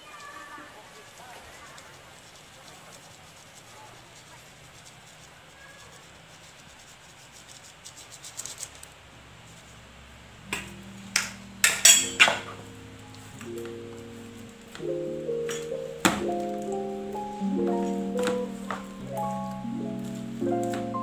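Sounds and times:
soft piano music: 10.2 - 21.0.

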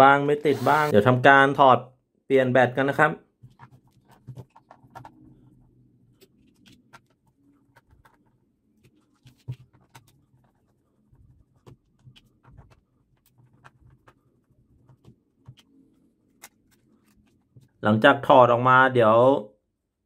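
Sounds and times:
small clicks and scrapes: 3.4 - 17.8.

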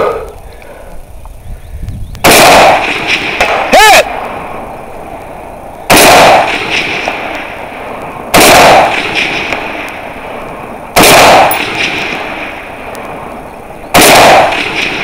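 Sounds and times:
rifle shots with echo: 2.2 - 4.6, 5.4 - 15.0.

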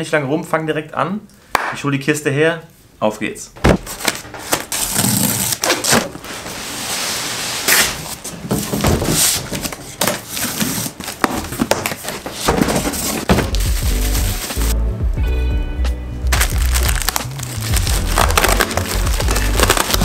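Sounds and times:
cardboard flaps rustling and knocking: 3.6 - 4.7, 8.2 - 14.6
bubble wrap crinkling: 9.6 - 14.8, 16.3 - 20.0.

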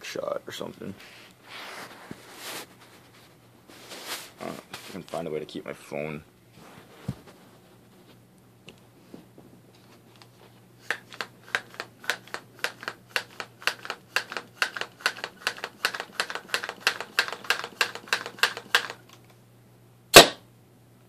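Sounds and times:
airgun hand pump strokes: 10.8 - 19.0
airgun firing bang: 20.1 - 20.4.

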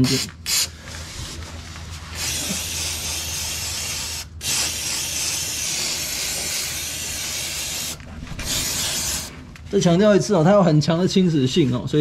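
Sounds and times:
aerosol can spraying hiss: 2.2 - 9.3.

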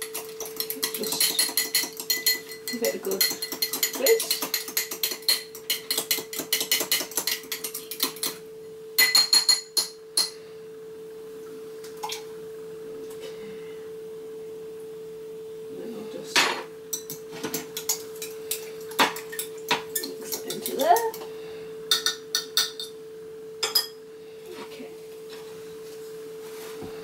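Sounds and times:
steady hum: 0.0 - 27.0
fork clinking against glass: 0.2 - 8.4.

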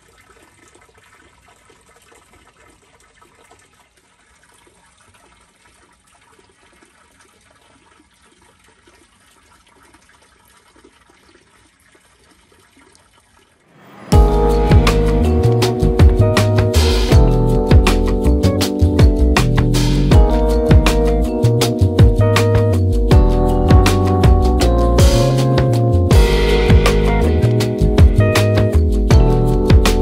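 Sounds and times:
water trickling into a stone basin: 0.0 - 14.7
loud music: 14.1 - 30.0.

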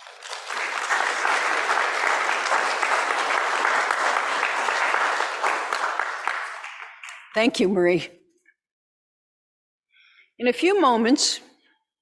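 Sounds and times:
congregation applauding: 0.0 - 7.5.

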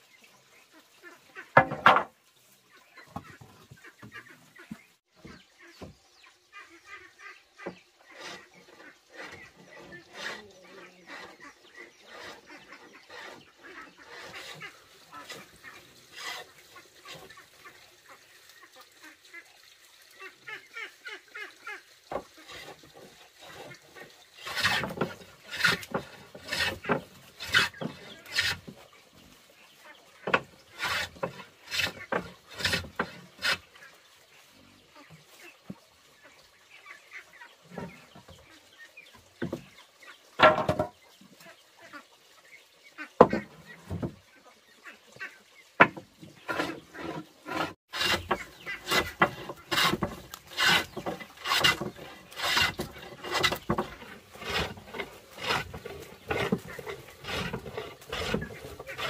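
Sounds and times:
hand plane shaving wood: 8.1 - 15.5, 16.1 - 16.5, 24.4 - 28.8, 30.3 - 33.7, 45.8 - 59.0.

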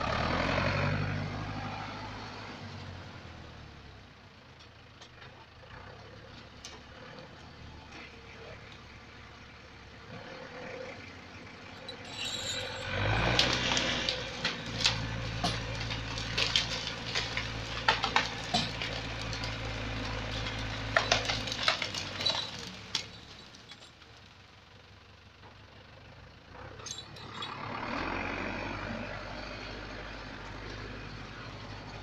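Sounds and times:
engine running under load: 0.0 - 32.0
tree crown scraping through trees: 11.8 - 23.7
branches cracking and snapping: 12.8 - 23.7.

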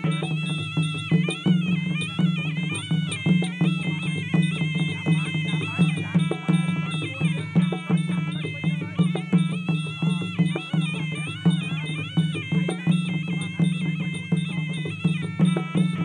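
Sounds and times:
reedy oboe melody: 0.0 - 16.0
steady drum beat: 0.0 - 16.0.

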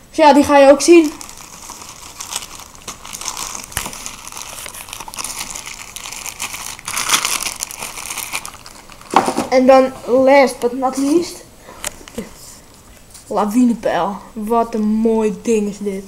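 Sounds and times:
plastic bag crinkling: 0.5 - 9.7.

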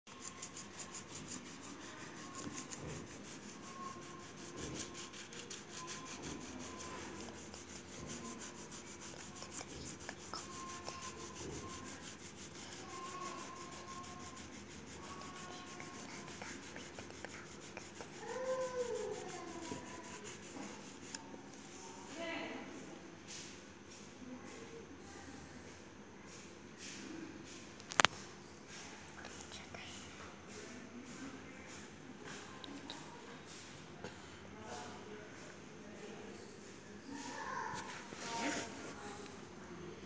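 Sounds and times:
pencil shading on paper: 0.1 - 21.2.

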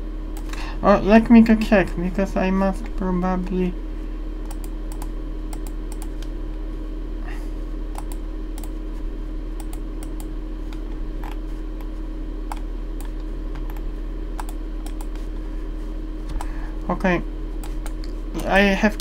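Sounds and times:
low electrical hum: 0.0 - 19.0
computer keyboard clicks: 8.0 - 8.7.

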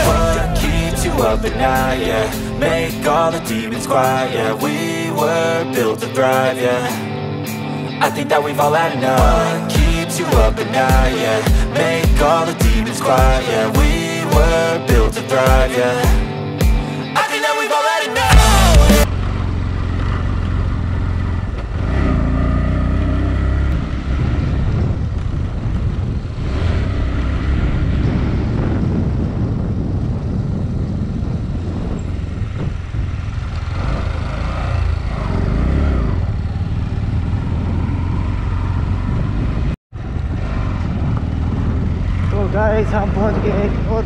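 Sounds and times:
motorcycle engine rumbling: 0.0 - 5.6, 18.3 - 44.0.

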